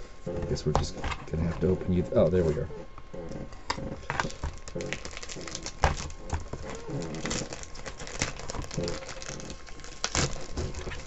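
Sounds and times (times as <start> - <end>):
plastic bag crinkling: 4.0 - 11.0.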